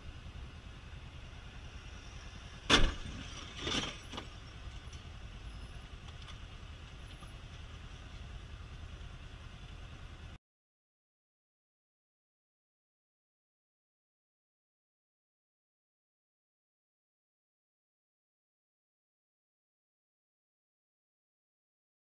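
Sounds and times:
motorcycle engine rumble: 0.0 - 10.4
surrounding traffic: 0.0 - 10.4.

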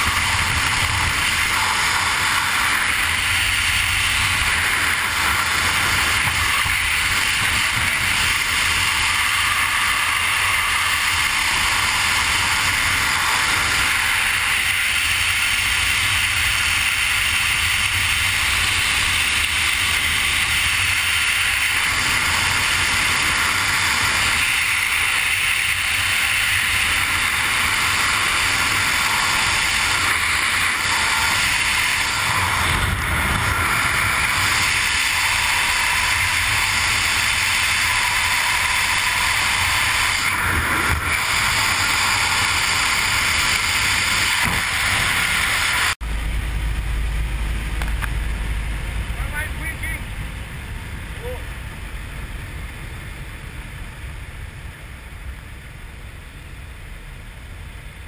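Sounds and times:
freefall wind rushing: 0.0 - 57.8
low buffeting rumble: 44.4 - 58.0.

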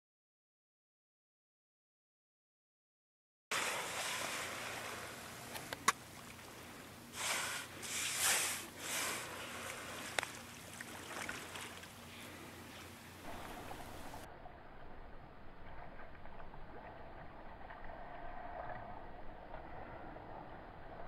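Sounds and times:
water lapping around kayak: 3.5 - 14.3.

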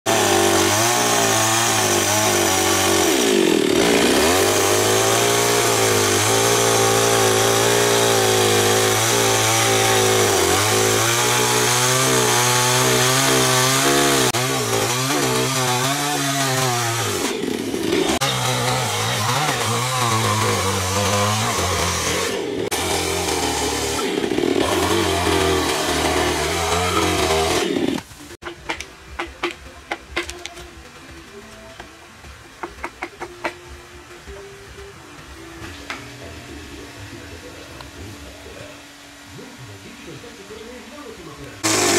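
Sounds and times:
chainsaw cutting wood: 0.1 - 29.6, 41.6 - 41.9.

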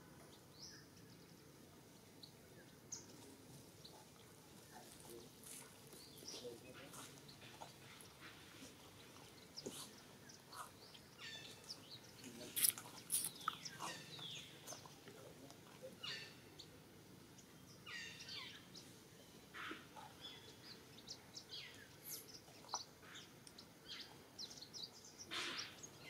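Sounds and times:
faint outdoor hum: 0.0 - 26.0
animal chirps and squeaks: 12.4 - 14.9, 16.0 - 16.4.

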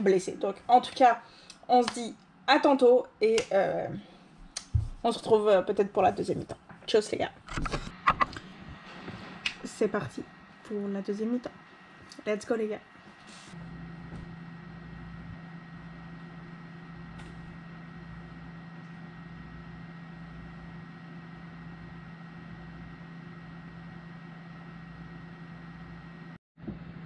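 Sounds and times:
low hum: 7.6 - 27.0.

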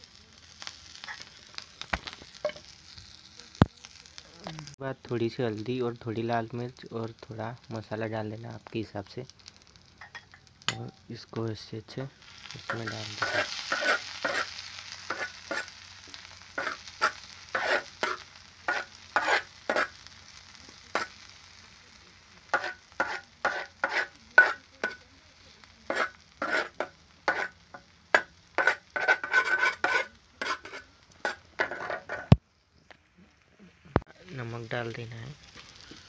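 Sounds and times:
oil sizzling: 0.0 - 36.0
spoon scraping in a wok: 12.3 - 20.0, 20.9 - 21.2, 22.5 - 25.0, 25.8 - 32.4.

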